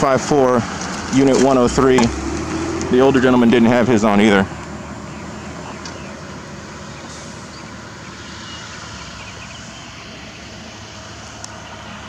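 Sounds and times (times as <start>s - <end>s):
car engine and tyre noise: 0.0s - 12.0s.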